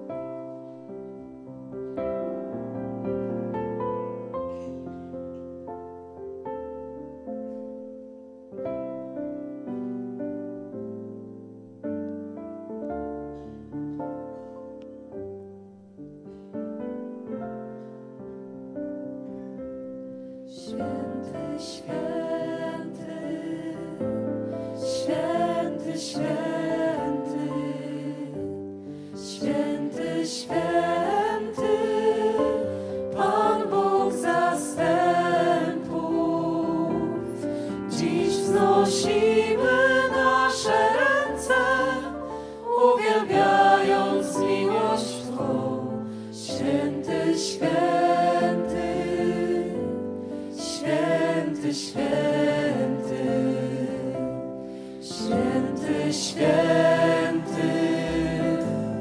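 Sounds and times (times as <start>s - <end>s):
choir singing in harmony: 20.2s - 59.0s.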